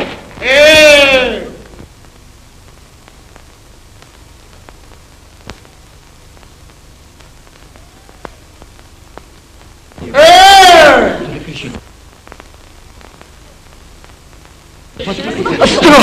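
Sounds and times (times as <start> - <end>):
film soundtrack hiss and hum: 0.0 - 16.0
clicks and crackles: 1.6 - 10.1, 11.6 - 15.0.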